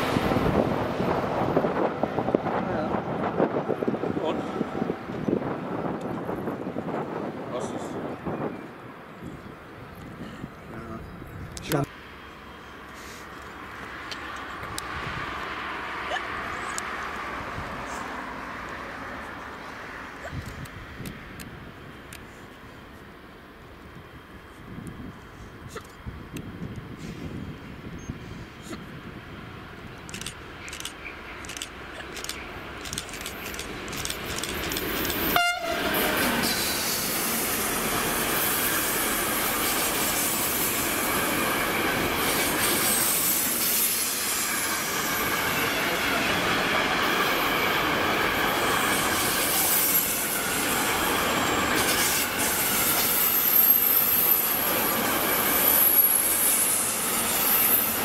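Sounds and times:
train wheels clicking: 30.0 - 58.0
locomotive horn toot: 35.3 - 36.0.

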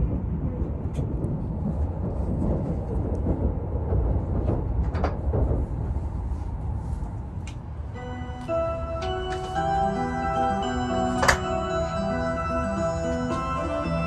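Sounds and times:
train running rumble: 0.0 - 14.0.

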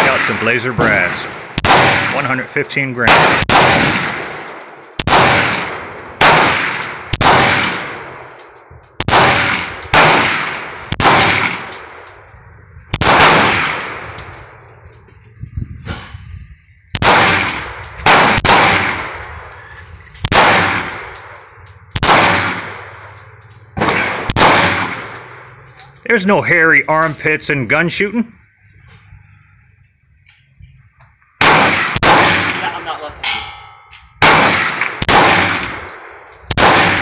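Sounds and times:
pistol shots echoing: 0.0 - 12.2, 12.9 - 14.4, 17.0 - 19.6, 20.2 - 25.6, 31.4 - 37.0.

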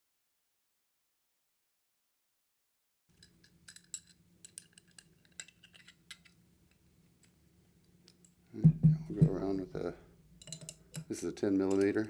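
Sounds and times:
metal valve parts clinking: 3.1 - 6.4, 10.4 - 12.0.

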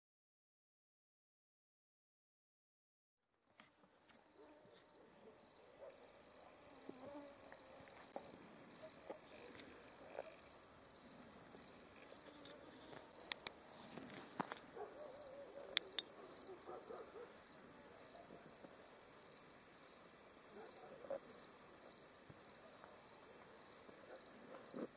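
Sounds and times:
faint low background noise: 3.2 - 24.9
crickets chirping: 3.4 - 24.9.

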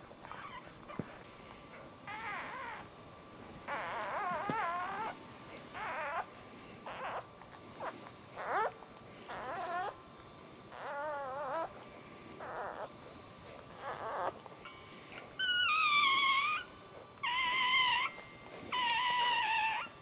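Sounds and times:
newborn puppy squealing: 0.3 - 0.7, 2.1 - 2.9, 3.7 - 5.2, 5.8 - 10.0, 10.7 - 11.7, 12.4 - 12.9, 13.7 - 14.8, 15.4 - 20.0.

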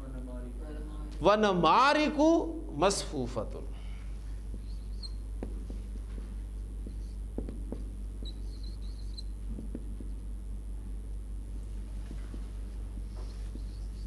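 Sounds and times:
low electrical hum: 0.0 - 14.0
marker squeaking on whiteboard: 4.5 - 5.8, 6.8 - 10.2, 12.3 - 14.0
marker tapping on whiteboard: 5.4 - 5.8, 6.8 - 8.4, 9.5 - 10.2.

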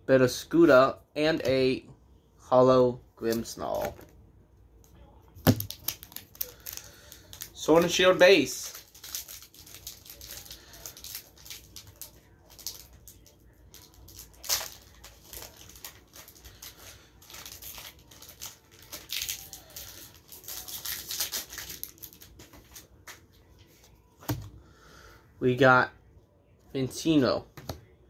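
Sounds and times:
foil wrapper tearing and crinkling: 5.5 - 22.4.

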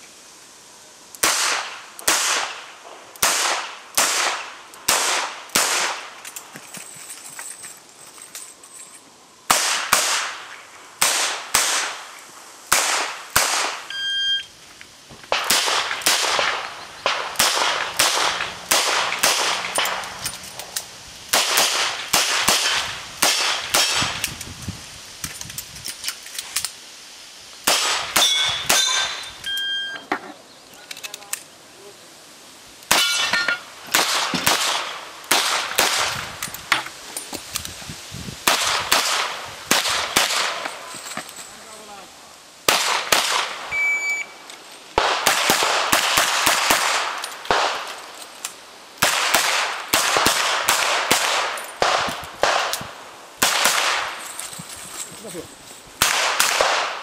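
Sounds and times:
metallic rings from steel targets: 28.2 - 30.1, 32.9 - 33.7.

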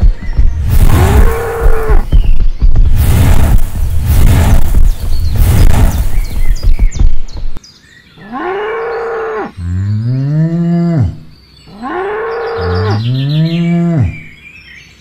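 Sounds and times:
cow mooing: 8.2 - 14.3.

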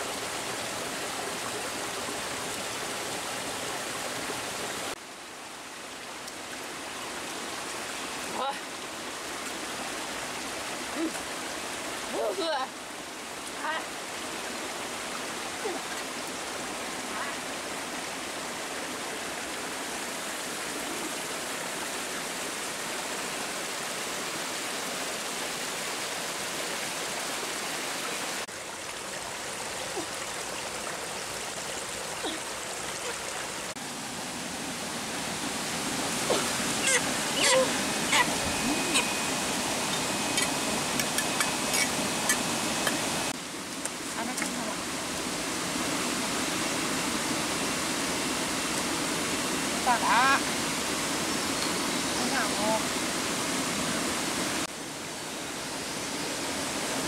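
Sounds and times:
stream rushing over rocks: 0.0 - 57.0
thin high tone: 36.8 - 43.3.

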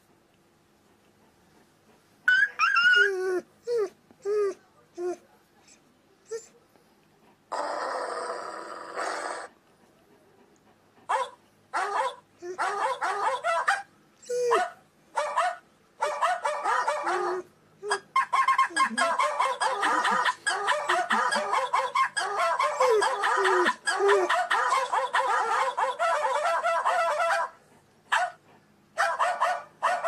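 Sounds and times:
squeaky animal cries: 2.3 - 3.1, 21.4 - 24.3.

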